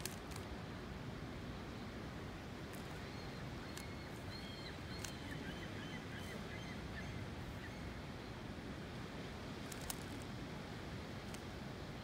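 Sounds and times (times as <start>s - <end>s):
faint bird chirps: 2.8s - 7.9s.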